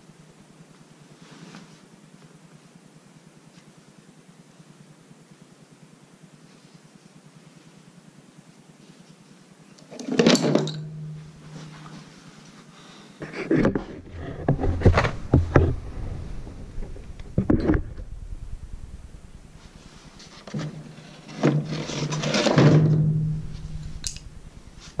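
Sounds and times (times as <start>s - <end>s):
scrape and clatter: 10.0s - 18.1s, 19.5s - 25.0s.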